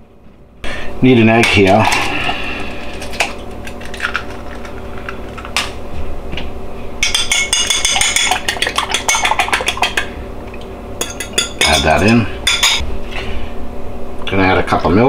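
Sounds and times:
ceramic dishes clinking: 7.0s - 10.1s, 11.0s - 12.8s.

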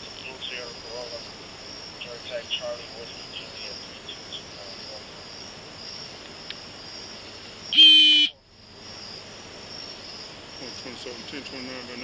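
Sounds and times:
crickets chirping: 0.0s - 12.0s
electronic tone: 7.8s - 8.3s.

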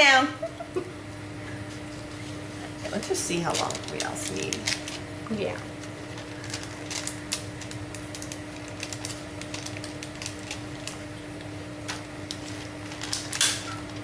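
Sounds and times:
faint steady hum: 0.0s - 14.0s
paper rustling: 1.9s - 5.0s, 6.0s - 11.0s, 11.8s - 14.0s.

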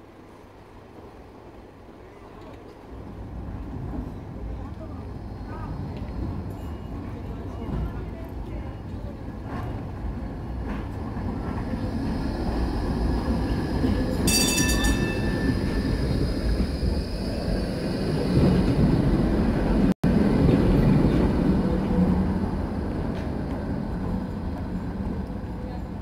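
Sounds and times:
tram rumbling past: 0.0s - 26.0s
high ringing tone: 14.2s - 16.2s.

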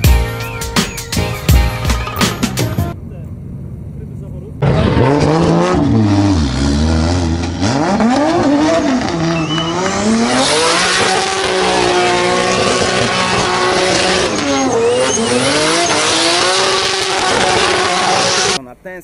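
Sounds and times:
car engine revving hard: 4.6s - 18.6s
tyres squealing: 9.1s - 18.6s.

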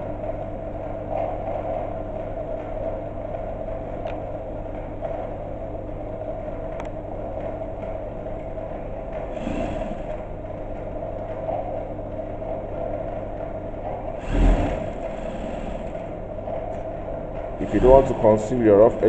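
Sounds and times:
sewing machine humming: 9.4s - 10.3s, 14.1s - 16.3s, 17.6s - 19.0s.

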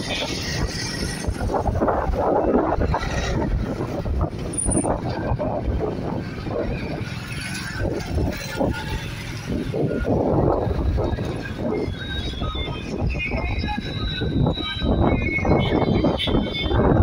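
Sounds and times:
wind noise: 0.0s - 17.0s.

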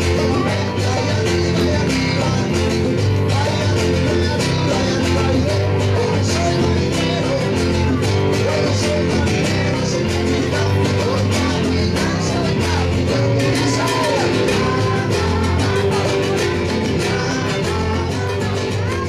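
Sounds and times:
acoustic guitar: 0.0s - 19.0s
bass line: 0.0s - 19.0s
keyboard: 0.0s - 19.0s
percussion strokes: 0.0s - 19.0s.

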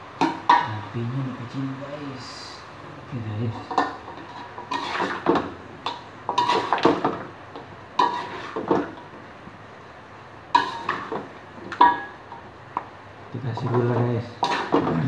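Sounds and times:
metal spatula scraping a wok: 3.6s - 7.0s, 8.0s - 8.7s, 10.6s - 11.1s, 14.3s - 14.9s.

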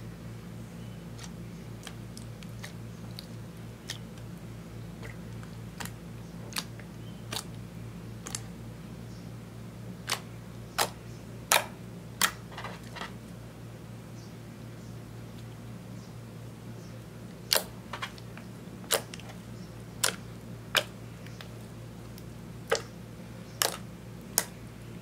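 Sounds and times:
steady low hum: 0.0s - 25.0s
slime sticky clicks: 10.0s - 12.4s, 20.0s - 21.5s, 23.6s - 23.8s.

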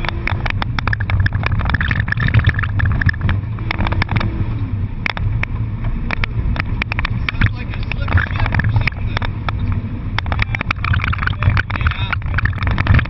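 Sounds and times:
car engine droning: 0.0s - 13.0s
sharp clicks and rattles: 0.0s - 13.0s.

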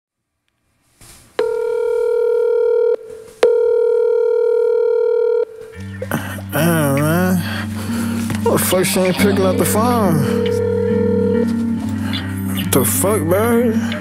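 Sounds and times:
telephone ringing tone: 1.4s - 6.0s, 8.5s - 13.8s
wavering sung voice: 5.8s - 14.0s.

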